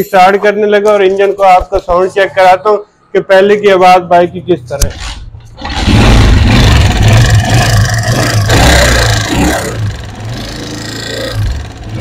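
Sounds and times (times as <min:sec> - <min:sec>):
motorcycle engine revving and idling: 0:05.6 - 0:12.0.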